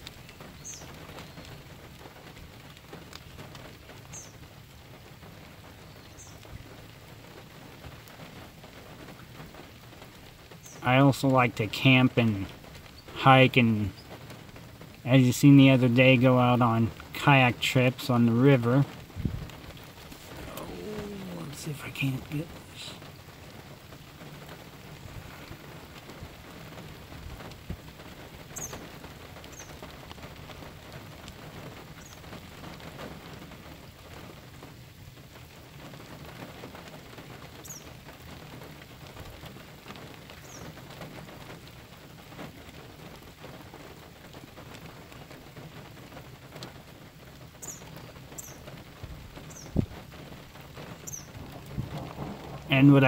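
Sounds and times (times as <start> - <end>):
rain pattering: 0.0 - 53.0.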